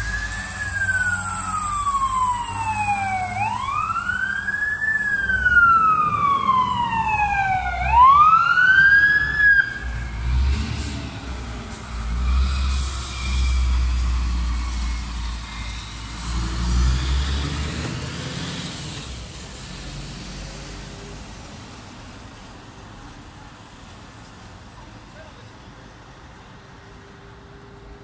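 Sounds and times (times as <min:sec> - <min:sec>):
fire engine siren wailing: 0:00.0 - 0:19.6.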